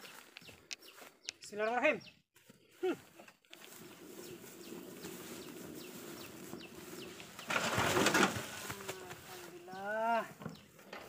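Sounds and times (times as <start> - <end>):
birds chirping: 0.0 - 11.0
wheelbarrow rattling over grass: 3.2 - 11.0.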